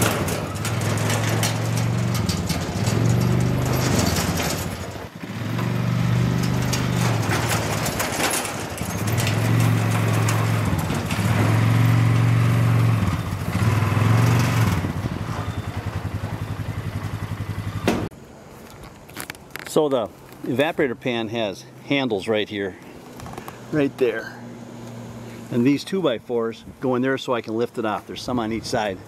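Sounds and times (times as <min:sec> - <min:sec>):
atv engine revving and idling: 0:00.0 - 0:18.1, 0:23.1 - 0:25.8.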